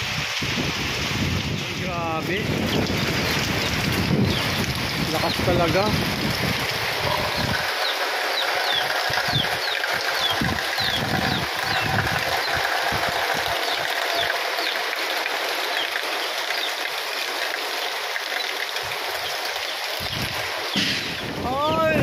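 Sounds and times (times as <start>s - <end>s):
wind buffeting microphone: 0.0s - 14.3s, 20.0s - 22.0s
heavy rain pouring: 0.0s - 22.0s
bird chirps: 7.0s - 12.6s, 13.6s - 14.8s.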